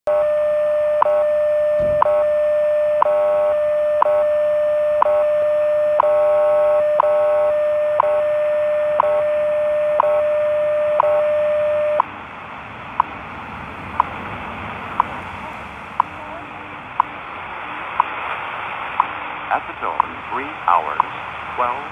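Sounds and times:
steady radio tone: 0.1s - 12.1s, 16.0s - 21.9s
shortwave hiss: 12.0s - 21.9s.

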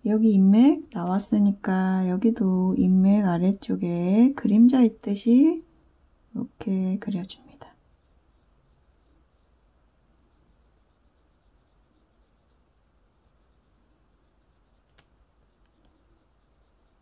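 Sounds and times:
pencil scratching on paper: 7.7s - 17.0s.

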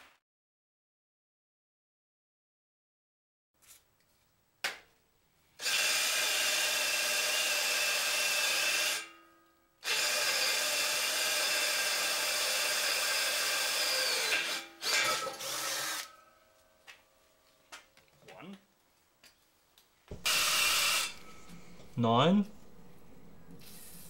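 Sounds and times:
cordless drill boring into steel: 5.6s - 9.1s, 9.8s - 16.1s, 20.1s - 21.9s.

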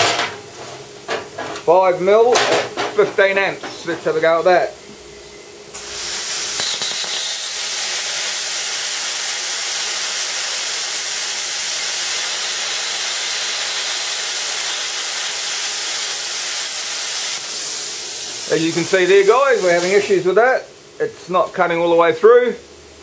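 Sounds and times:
plasma cutter arc hissing: 5.7s - 20.4s.

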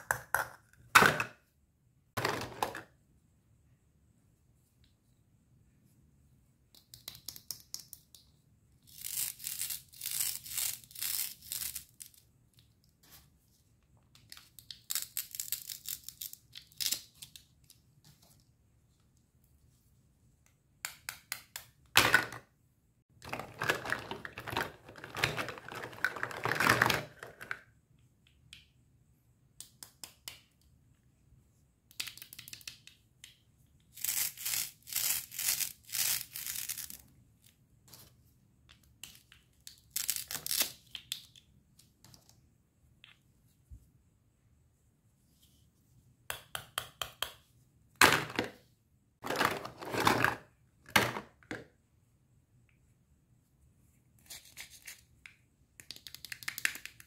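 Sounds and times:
plastic pieces clacking: 38.7s - 42.3s.

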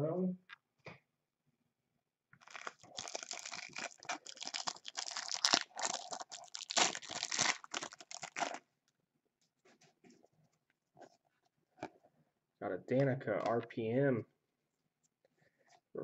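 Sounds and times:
plastic wrapper tearing and crinkling: 2.4s - 8.6s.

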